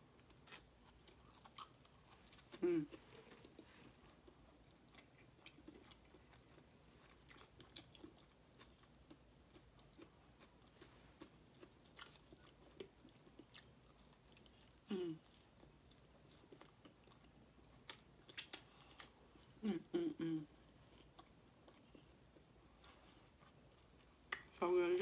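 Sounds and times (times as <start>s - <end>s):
person chewing food: 0.2s - 24.5s.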